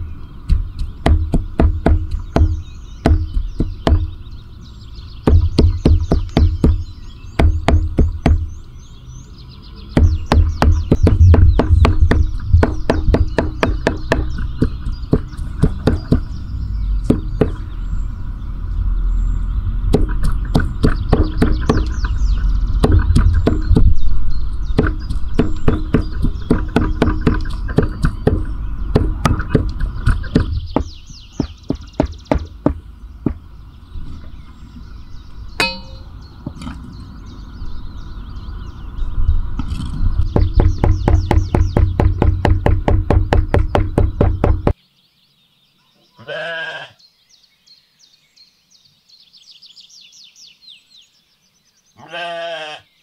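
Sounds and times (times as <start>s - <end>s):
cleaver chopping on wooden block: 0.5s - 4.1s, 5.3s - 8.5s, 10.0s - 16.3s, 17.1s - 17.6s, 19.9s - 22.1s, 22.8s - 24.0s, 24.8s - 33.4s, 40.3s - 44.8s.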